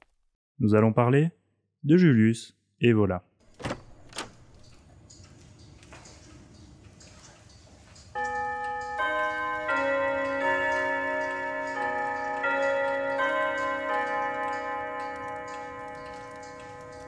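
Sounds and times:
clock ticking: 4.5s - 17.0s
clock chiming bell-like melody: 8.0s - 17.0s.

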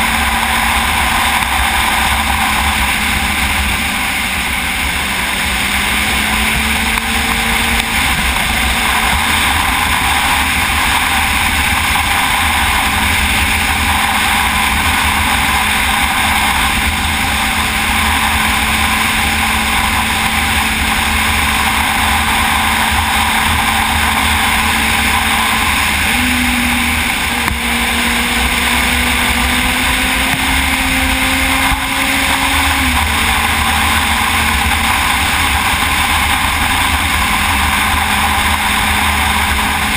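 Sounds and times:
motorcycle engine: 0.0s - 39.9s
wind rush on microphone: 0.0s - 39.9s.

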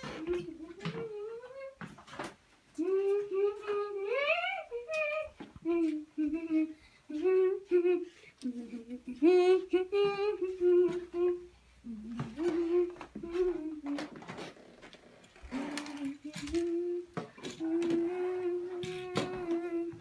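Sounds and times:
boy humming: 0.0s - 1.9s, 2.8s - 14.7s, 15.4s - 20.0s.

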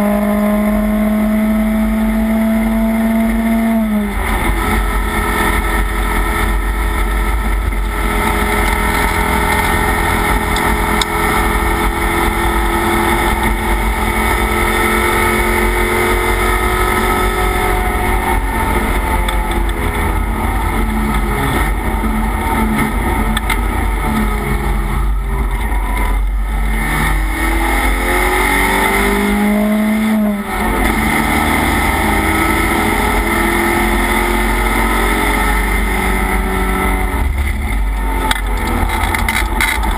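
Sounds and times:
race car engine revving: 0.0s - 39.9s.

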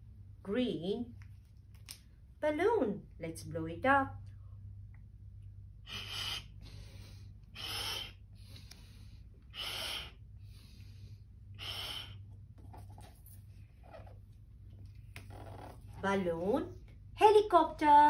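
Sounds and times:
person blowing up balloon: 5.8s - 8.7s, 9.5s - 10.2s, 11.5s - 12.2s.

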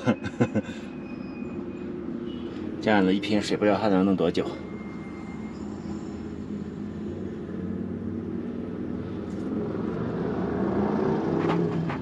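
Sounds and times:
motor vehicle engine hum: 4.5s - 12.0s.

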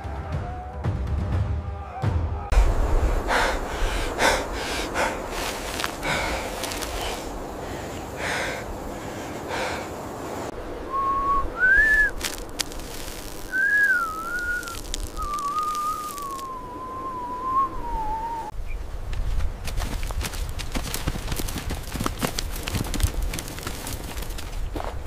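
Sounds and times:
men panting heavily: 3.2s - 10.4s
person whistling a tune: 10.9s - 12.2s, 13.5s - 18.5s.

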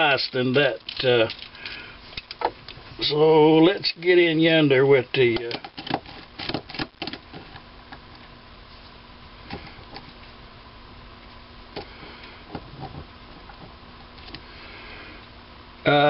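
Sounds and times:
faint hum: 0.0s - 16.0s.

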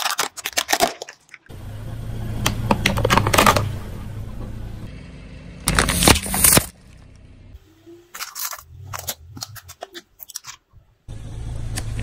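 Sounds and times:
plastic toys cracking under tyre: 0.0s - 1.5s, 8.2s - 10.7s
car rolling rumble: 1.5s - 7.6s.

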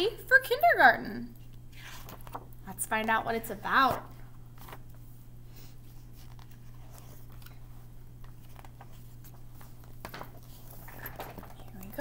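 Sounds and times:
low electrical hum: 0.0s - 12.0s
paper rustling: 1.7s - 2.5s, 3.9s - 5.0s, 5.8s - 12.0s.

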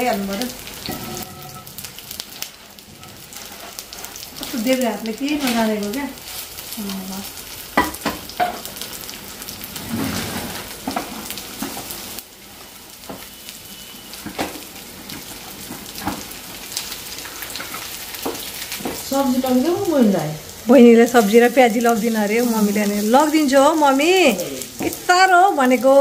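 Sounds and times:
batter sizzling in hot oil: 0.0s - 26.0s.

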